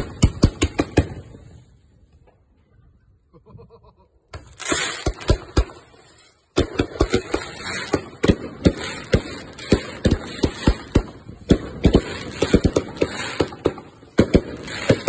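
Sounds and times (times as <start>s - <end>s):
firework bangs and crackles: 0.0s - 1.8s, 4.4s - 15.0s
firework hissing with cracks: 4.4s - 15.0s.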